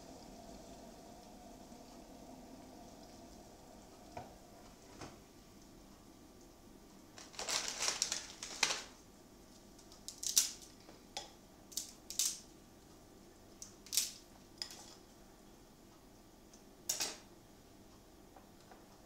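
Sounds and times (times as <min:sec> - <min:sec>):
dry noodles crunching and crackling: 0:07.1 - 0:09.0, 0:09.7 - 0:10.7.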